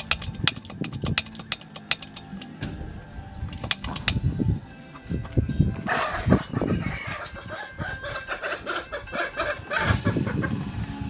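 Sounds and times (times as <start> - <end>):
chickens clucking: 4.9 - 10.8.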